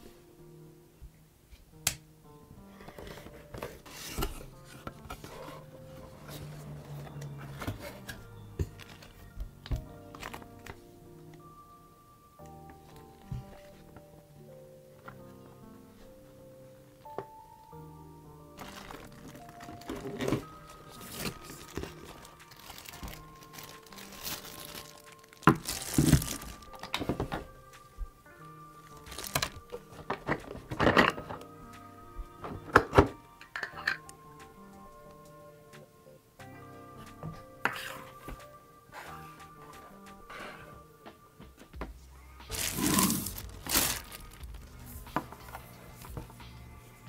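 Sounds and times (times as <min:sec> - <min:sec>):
background music: 0:00.0 - 0:47.0
objects being handled: 0:02.6 - 0:10.8, 0:18.6 - 0:28.2, 0:28.8 - 0:31.5, 0:37.0 - 0:40.7, 0:41.4 - 0:46.7
packaging crinkling and rustling: 0:18.6 - 0:27.8, 0:28.8 - 0:31.4, 0:42.5 - 0:46.2.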